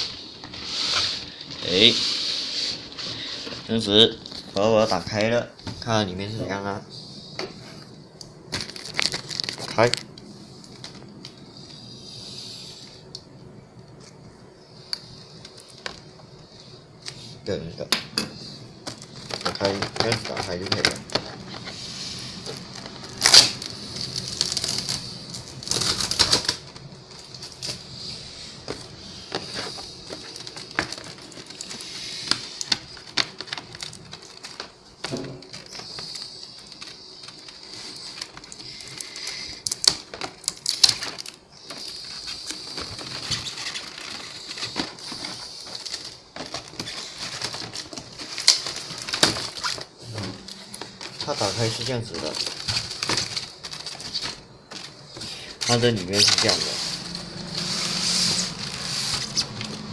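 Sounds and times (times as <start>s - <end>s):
cardboard flaps scraping and rustling: 18.3s - 59.9s.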